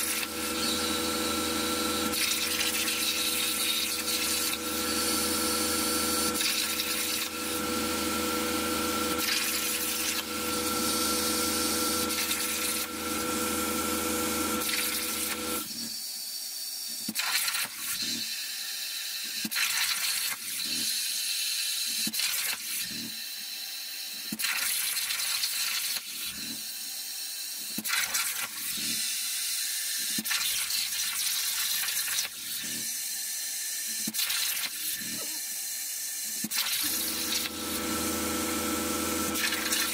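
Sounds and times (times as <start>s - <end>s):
steady machine hum: 0.0s - 15.7s, 36.9s - 39.9s
plasma torch hissing: 39.3s - 39.9s.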